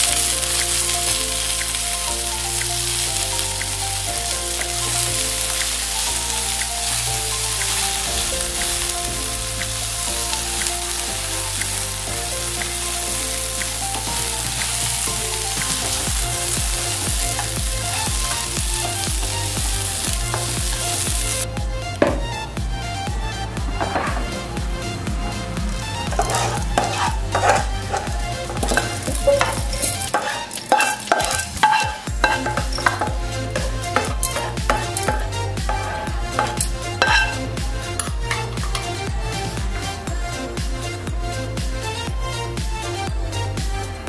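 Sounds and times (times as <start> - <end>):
food sizzling in oil: 0.0 - 21.5, 26.0 - 38.9
background music: 0.0 - 44.0.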